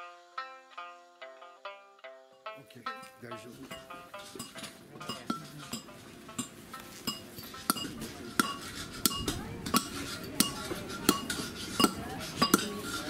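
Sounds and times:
rod pounding stones in a tube: 3.7s - 13.0s.

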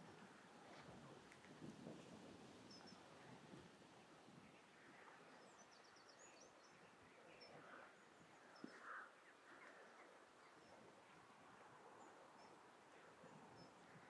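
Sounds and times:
distant birdsong: 4.0s - 14.0s.

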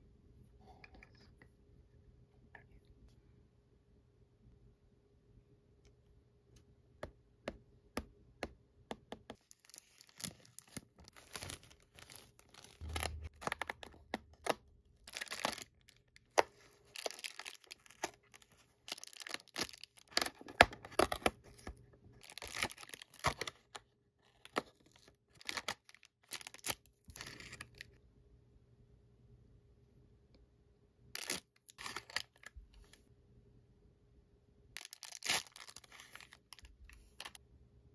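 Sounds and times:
foil wrapper crinkling: 9.4s - 20.4s, 22.2s - 23.5s, 25.4s - 27.8s, 34.8s - 37.4s.

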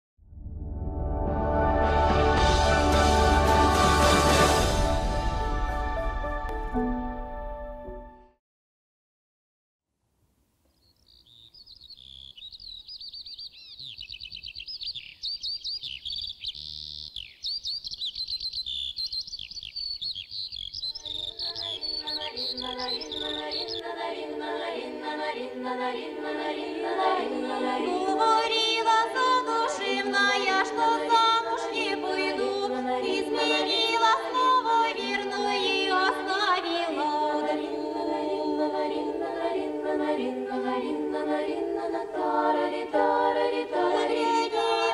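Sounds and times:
choir singing a cappella: 1.4s - 5.7s, 21.0s - 44.9s
birds chirping: 10.7s - 24.0s.

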